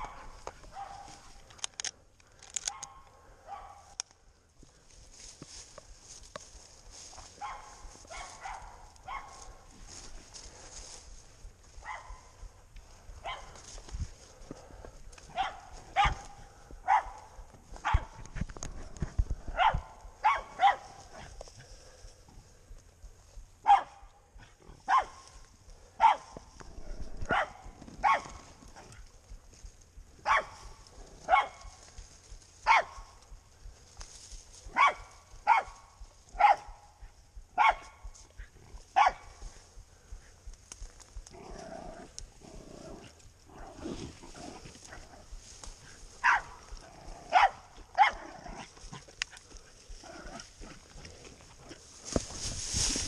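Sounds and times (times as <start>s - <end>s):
dog barking: 0.0s - 1.3s, 2.7s - 4.0s, 7.4s - 9.6s, 11.8s - 12.4s, 13.2s - 13.6s, 15.3s - 18.2s, 19.5s - 21.3s, 23.6s - 25.2s, 26.0s - 26.4s, 27.2s - 29.0s, 30.2s - 30.6s, 31.2s - 31.7s, 32.6s - 33.1s, 34.7s - 38.1s, 38.9s - 39.4s, 46.2s - 46.6s, 47.3s - 48.2s.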